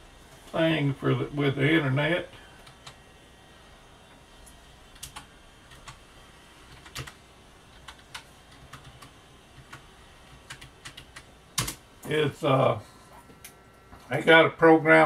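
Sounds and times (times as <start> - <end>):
computer keyboard typing: 2.6 - 3.0, 4.9 - 6.0, 6.7 - 11.8.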